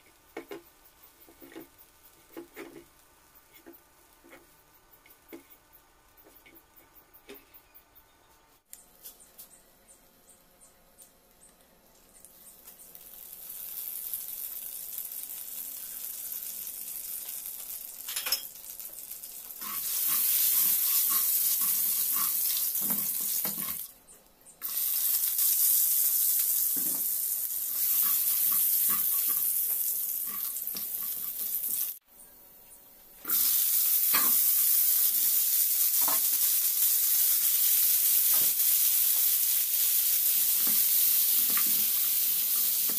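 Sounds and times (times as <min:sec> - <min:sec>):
oil sizzling in frying pan: 0:12.3 - 0:23.9, 0:24.6 - 0:32.0, 0:33.2 - 0:42.9.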